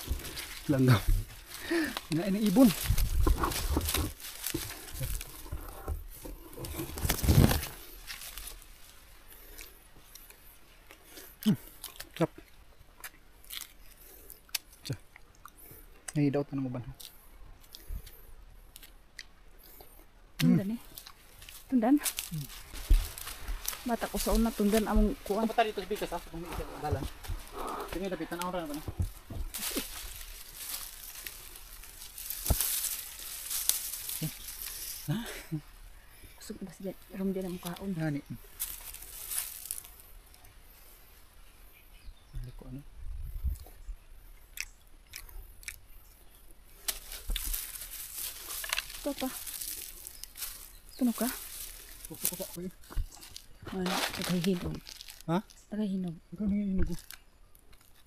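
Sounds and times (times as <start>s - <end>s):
banana peel tearing and rustling: 0.0s - 14.9s, 20.4s - 35.2s, 38.5s - 40.1s, 46.7s - 55.6s, 56.8s - 58.0s.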